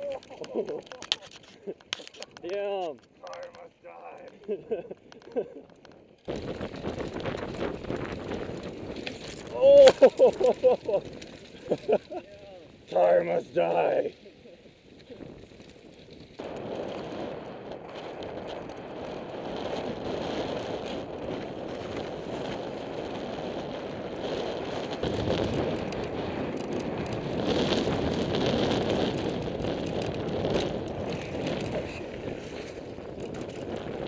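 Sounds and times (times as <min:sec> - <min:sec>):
bike clattering: 0:00.0 - 0:12.9, 0:14.2 - 0:34.0
tyres crunching on gravel: 0:00.0 - 0:22.3
wind rushing on microphone: 0:06.3 - 0:34.0.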